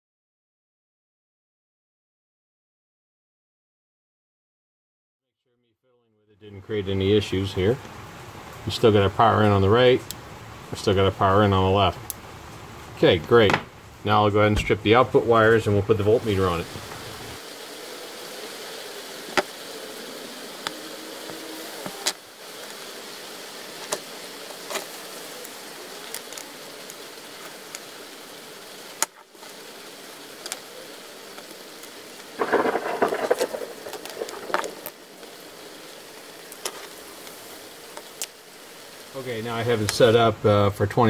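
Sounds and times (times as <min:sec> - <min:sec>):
steady hiss: 0:06.4 - 0:41.0
rustling and scraping: 0:32.3 - 0:35.4.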